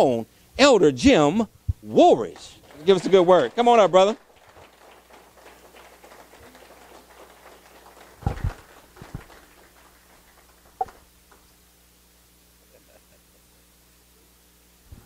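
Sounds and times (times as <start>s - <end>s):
light scattered clapping: 2.2s - 11.6s.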